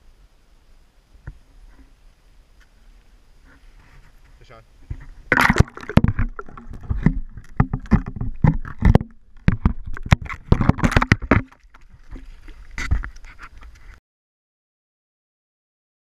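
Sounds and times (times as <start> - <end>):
water splashing and sloshing: 4.8 - 14.0.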